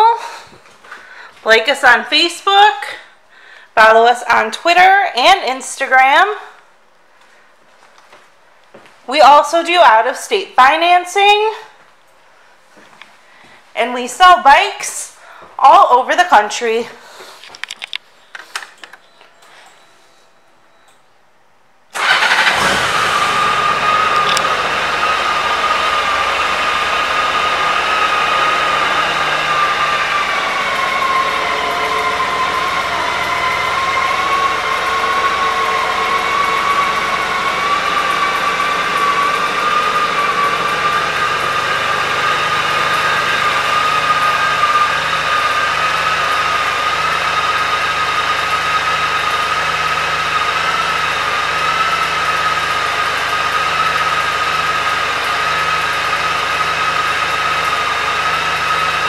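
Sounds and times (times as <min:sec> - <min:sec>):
motorcycle engine idling: 0:22.0 - 0:59.0
high whine: 0:22.7 - 0:59.0.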